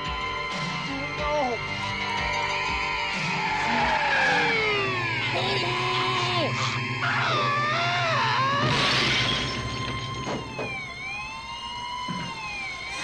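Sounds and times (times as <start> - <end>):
police siren wailing: 0.0 - 13.0
windshield glass breaking: 8.6 - 10.7
crash onto car: 8.6 - 10.8.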